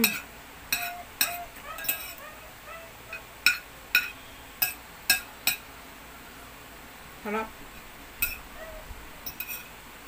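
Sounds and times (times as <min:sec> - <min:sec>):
cutlery clinking on ceramic plate: 0:00.0 - 0:02.2, 0:03.1 - 0:05.7, 0:08.2 - 0:08.4, 0:09.2 - 0:09.7.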